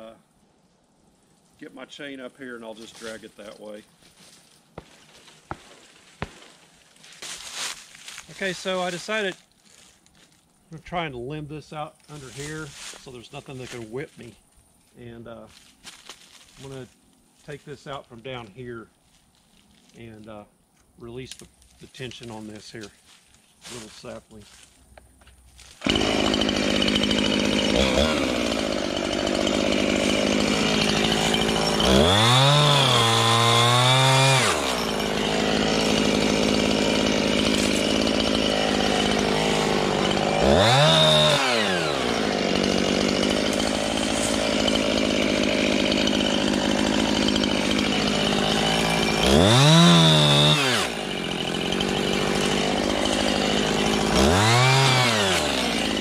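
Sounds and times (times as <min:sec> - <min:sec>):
chainsaw idling and revving: 0:02.7 - 0:03.6, 0:04.8 - 0:06.6, 0:07.4 - 0:09.3, 0:25.8 - 0:56.0.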